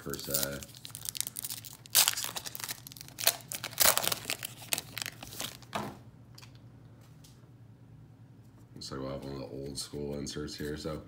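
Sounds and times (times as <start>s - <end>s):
foil wrapper tearing and crinkling: 0.0s - 5.7s.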